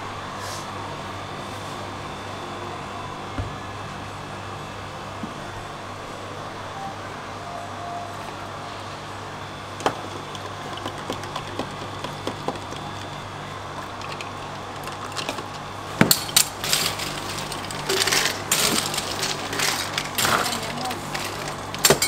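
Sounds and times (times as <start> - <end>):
ice clattering into plastic bottle: 13.8 - 22.0.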